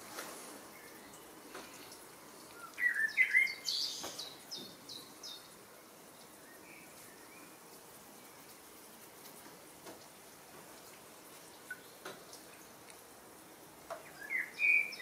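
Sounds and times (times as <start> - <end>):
faint outdoor hiss: 0.0 - 15.0
warbler singing: 0.7 - 5.6, 14.0 - 15.0.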